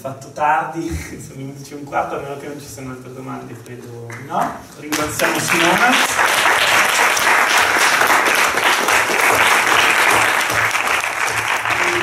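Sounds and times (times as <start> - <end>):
audience applauding: 4.9 - 12.0.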